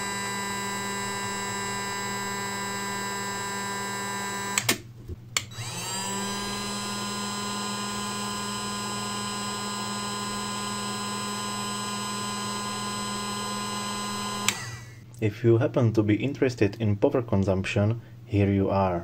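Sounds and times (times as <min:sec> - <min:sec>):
hot air gun fan whine: 0:00.0 - 0:04.8, 0:05.5 - 0:15.0.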